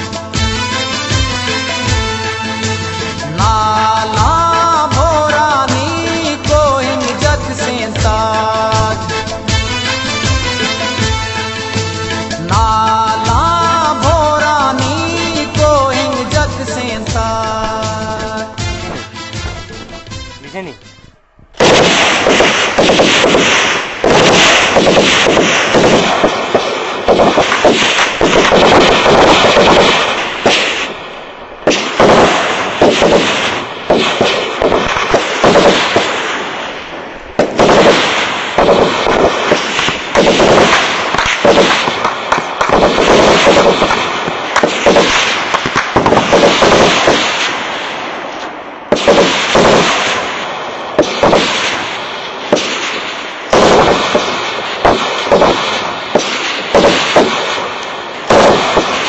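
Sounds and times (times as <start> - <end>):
rapid heavy gunfire: 3.4 - 19.0, 21.6 - 59.0.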